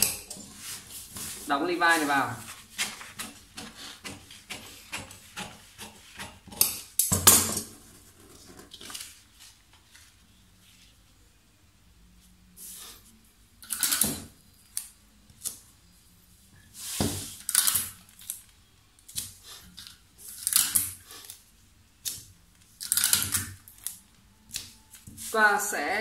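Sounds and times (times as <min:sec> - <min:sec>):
paper rustling on a table: 0:00.0 - 0:06.2, 0:07.7 - 0:11.0.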